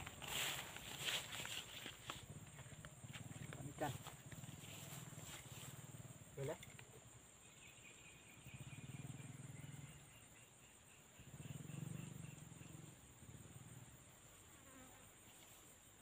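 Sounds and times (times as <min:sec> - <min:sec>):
high-pitched insect drone: 0:00.0 - 0:16.0
fly buzzing: 0:11.5 - 0:16.0.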